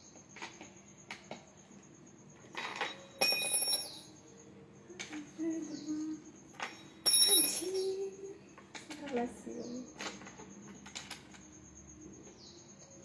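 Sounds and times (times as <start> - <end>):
ringing metallic clatter: 2.5 - 4.2, 6.5 - 8.3.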